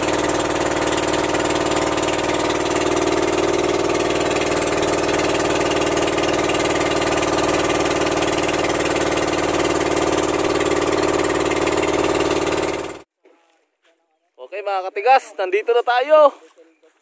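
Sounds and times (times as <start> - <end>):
boat engine droning: 0.0 - 13.1.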